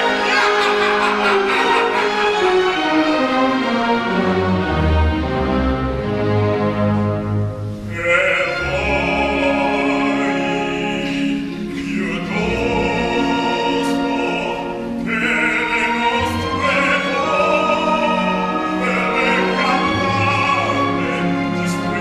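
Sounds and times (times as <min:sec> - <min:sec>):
man singing opera: 0:00.0 - 0:02.8, 0:07.8 - 0:22.0
orchestra playing: 0:00.0 - 0:22.0.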